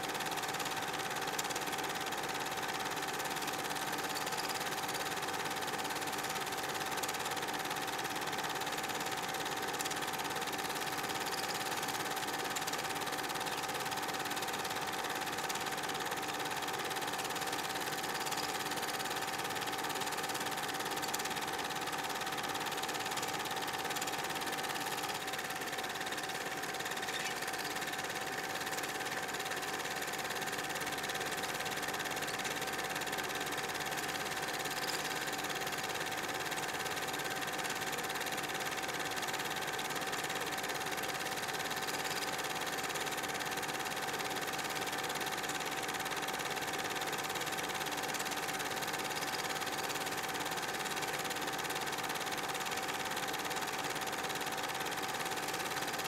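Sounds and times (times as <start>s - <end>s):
film projector whirring and rattling: 0.0s - 56.0s.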